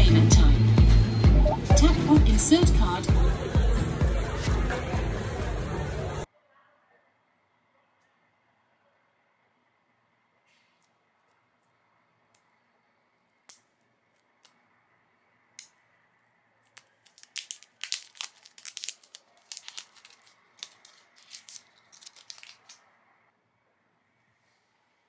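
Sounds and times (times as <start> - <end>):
plastic film crinkling: 16.6 - 23.0.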